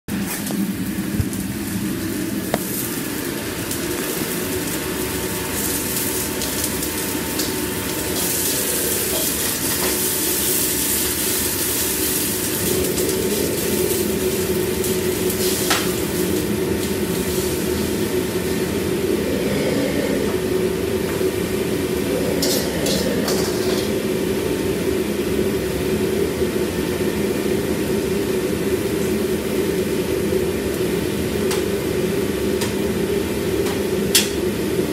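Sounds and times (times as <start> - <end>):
food sizzling in a wok: 0.2 - 34.9.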